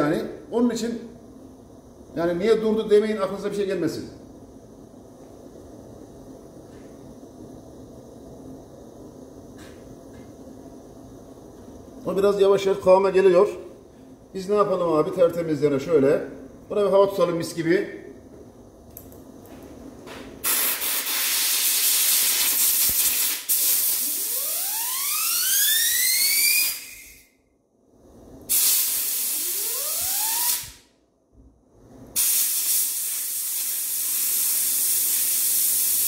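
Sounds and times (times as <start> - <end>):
compressed air blow gun hissing: 20.4 - 24.2, 28.5 - 29.7, 32.2 - 36.0
rising whistle: 24.1 - 27.3, 29.5 - 30.7.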